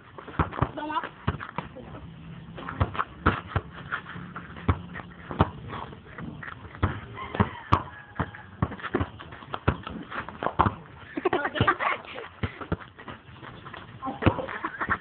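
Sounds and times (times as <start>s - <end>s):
basketball bouncing: 0.1s - 15.0s
feet landing on hard court: 4.6s - 10.8s.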